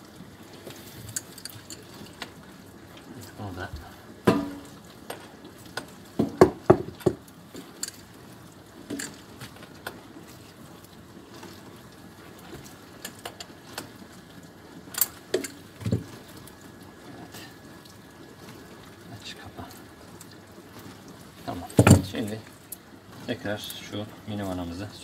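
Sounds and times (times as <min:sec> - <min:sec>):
clicks of metal plumbing fittings: 0:08.9 - 0:10.0, 0:14.9 - 0:16.1.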